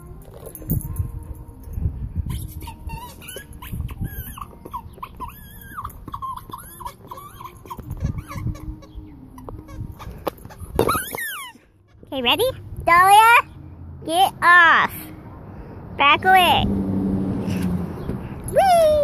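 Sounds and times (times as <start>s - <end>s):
dog whining: 2.2s - 12.1s.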